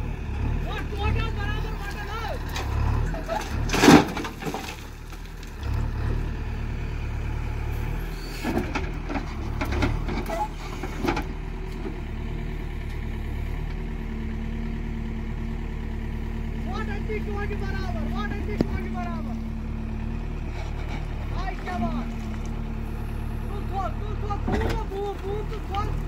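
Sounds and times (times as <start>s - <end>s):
diesel engine running: 0.0s - 26.0s.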